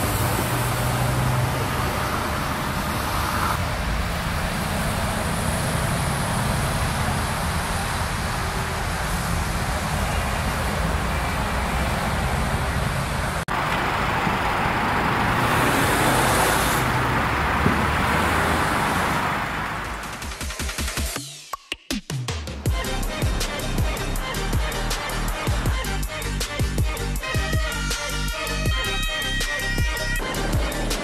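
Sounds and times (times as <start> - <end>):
low engine hum: 0.0 - 20.2
motorway traffic passing: 0.0 - 20.5, 22.7 - 31.0.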